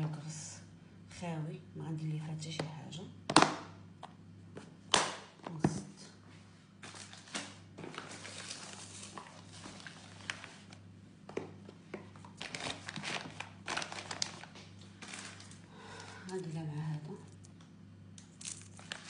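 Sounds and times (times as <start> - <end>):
plastic lid snapping shut: 3.3 - 3.7.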